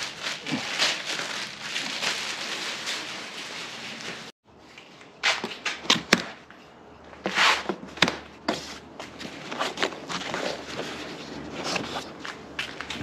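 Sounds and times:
packaging being handled: 0:00.0 - 0:04.3.

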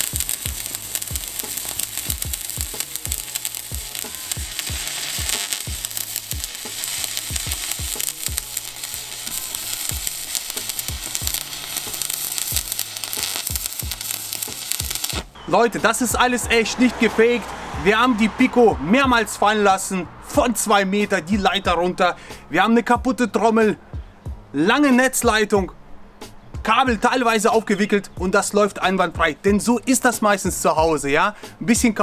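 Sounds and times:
welding arc crackling: 0:00.0 - 0:15.4.

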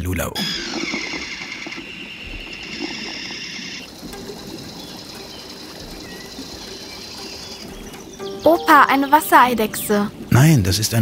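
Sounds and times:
toy submarine motor whining: 0:00.4 - 0:03.9.

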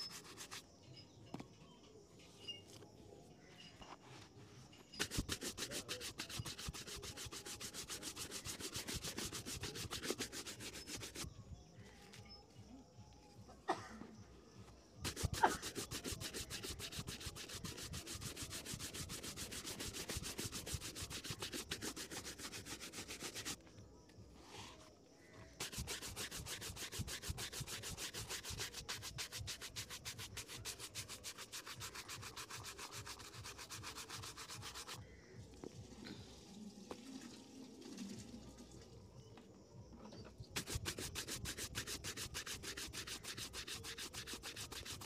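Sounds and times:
brush scrubbing leather shoe: 0:00.0 - 0:00.6, 0:05.0 - 0:11.3, 0:15.0 - 0:23.6, 0:25.6 - 0:35.0, 0:40.6 - 0:45.0.

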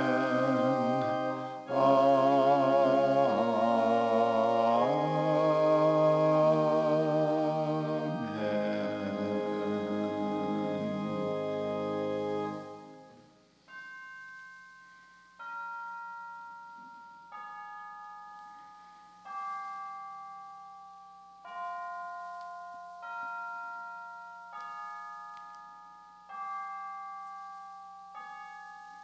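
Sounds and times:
bell-like chimes: 0:10.4 - 0:29.0.

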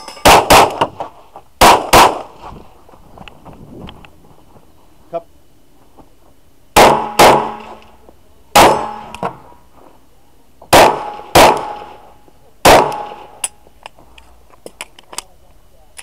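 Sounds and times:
pistol shots echoing: 0:00.2 - 0:00.9, 0:01.6 - 0:02.2, 0:06.8 - 0:07.8, 0:08.5 - 0:09.4, 0:10.7 - 0:13.5.

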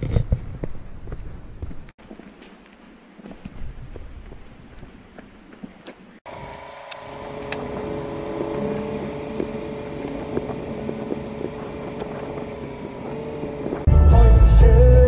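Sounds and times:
hydraulic pump whining: 0:06.3 - 0:13.9.

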